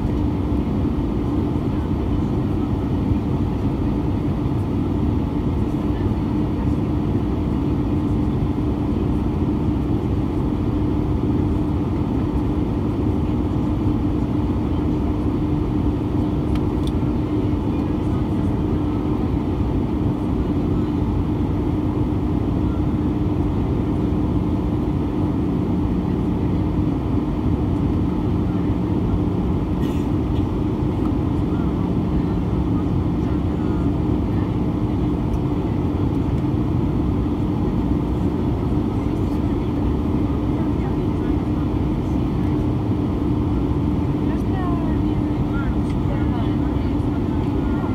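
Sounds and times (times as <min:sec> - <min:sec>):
aircraft cabin air and engine rush: 0:00.0 - 0:47.9.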